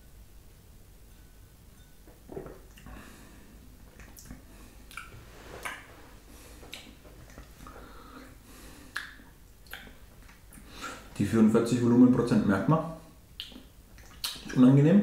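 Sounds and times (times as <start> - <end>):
wet lip smacks: 3.9 - 5.8, 6.6 - 7.5, 8.9 - 10.7, 13.4 - 14.6
tongue clicks: 4.0 - 5.8, 8.9 - 10.6, 13.4 - 14.6.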